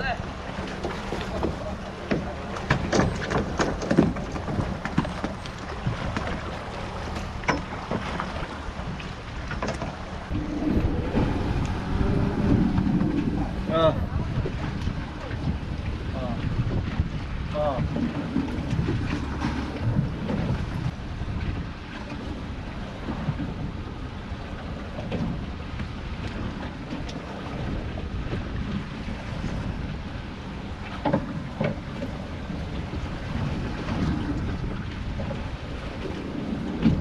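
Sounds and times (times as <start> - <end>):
water washing against hull: 0.0 - 37.0
wind buffeting microphone: 0.0 - 37.0.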